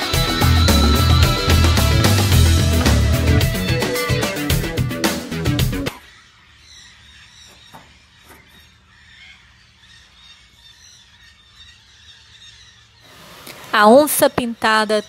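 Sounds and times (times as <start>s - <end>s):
faint outdoor ambience: 5.9s - 15.0s.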